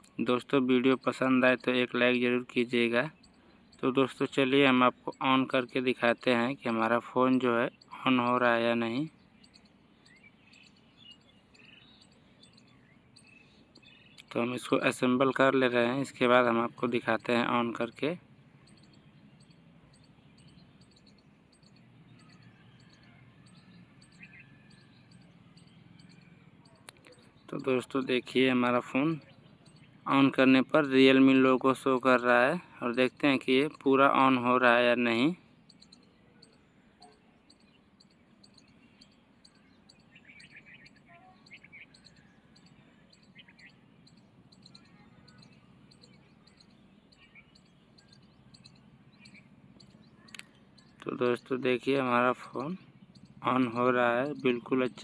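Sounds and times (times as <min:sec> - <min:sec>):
faint bird chirps: 0:00.0 - 0:55.0
light high ticks: 0:24.1 - 0:27.7, 0:48.0 - 0:51.1.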